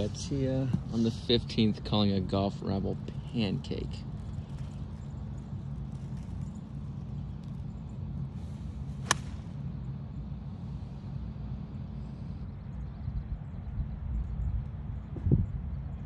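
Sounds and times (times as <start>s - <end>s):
golf club striking ball: 9.0s - 9.6s.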